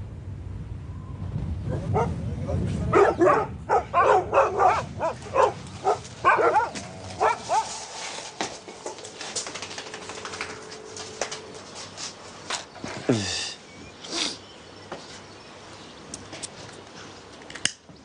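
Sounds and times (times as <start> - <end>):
dogs barking: 1.7 - 2.2, 2.9 - 8.6.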